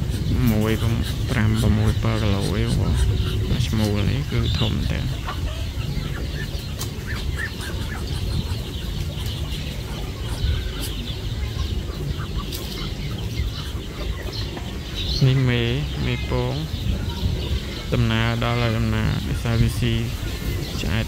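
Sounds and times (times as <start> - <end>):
chickens clucking: 0.0 - 21.0
steady low rumble: 0.0 - 21.0.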